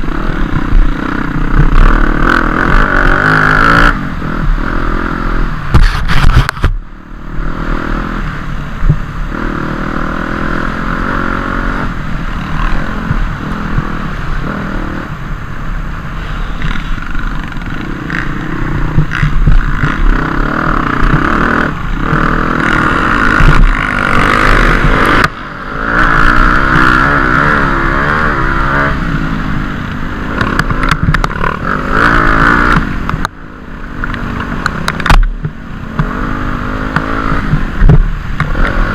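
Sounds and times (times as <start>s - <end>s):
dirt bike engine revving: 0.0s - 6.4s, 9.3s - 15.2s, 16.3s - 33.2s, 35.8s - 37.7s.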